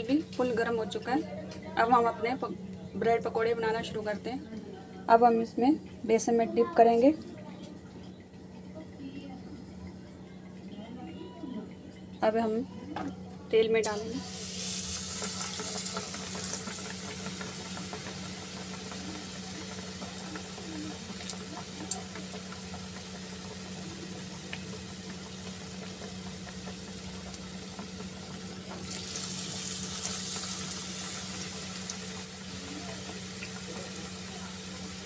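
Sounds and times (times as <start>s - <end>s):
food deep-frying in oil: 13.6s - 35.0s.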